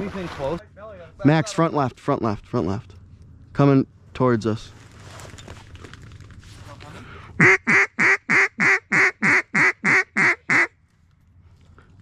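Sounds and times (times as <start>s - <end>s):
duck call quacks: 7.4s - 10.7s.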